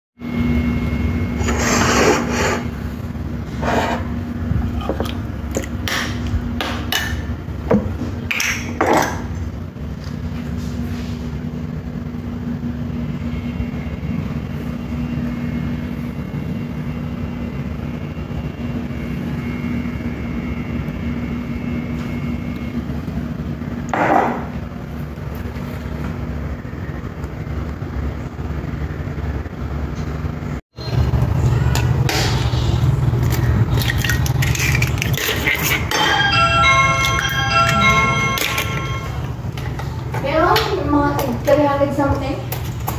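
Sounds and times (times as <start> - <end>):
faint high whine: 0.2 - 3.4, 11.6 - 23.8
low mechanical hum: 0.2 - 42.9.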